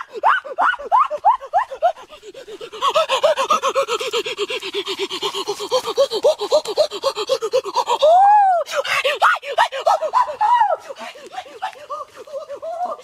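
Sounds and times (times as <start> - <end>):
man making yelping calls: 5.6 - 10.7.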